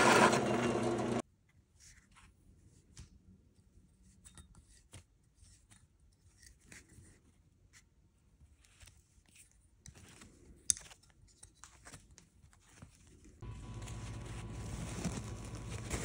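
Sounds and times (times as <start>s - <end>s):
paper towel rustling: 13.4s - 16.0s.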